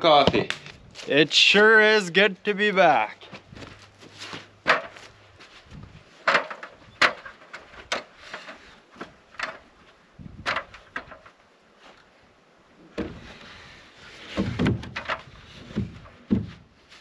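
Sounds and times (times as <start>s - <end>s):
boots on ladder rungs: 3.0s - 11.4s, 13.0s - 17.0s
wood bumping on wood: 3.3s - 5.1s, 6.2s - 9.7s, 10.4s - 11.4s, 12.9s - 13.5s, 14.2s - 16.7s
dull thump: 12.9s - 13.5s, 14.3s - 16.6s.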